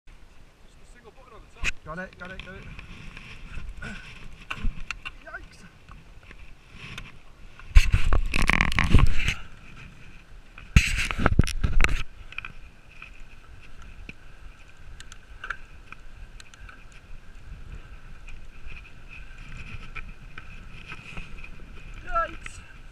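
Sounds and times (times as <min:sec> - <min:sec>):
bike tyres rolling on grass: 0:00.1 - 0:22.9
mountain bike rattling over bumps: 0:10.7 - 0:22.9.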